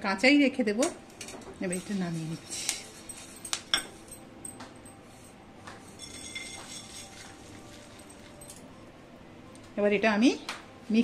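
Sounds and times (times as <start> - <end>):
steel pan clinking: 6.0 - 8.5.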